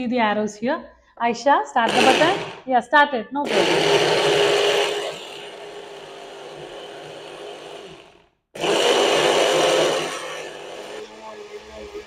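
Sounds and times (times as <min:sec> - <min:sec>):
blender motor running: 0:01.8 - 0:02.7, 0:03.5 - 0:12.0.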